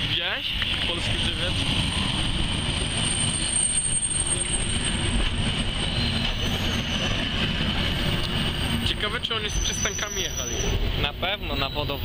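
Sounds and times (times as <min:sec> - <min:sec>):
wheels rumbling on rails: 0:00.0 - 0:12.0
high-pitched wheel squeal: 0:02.8 - 0:10.8.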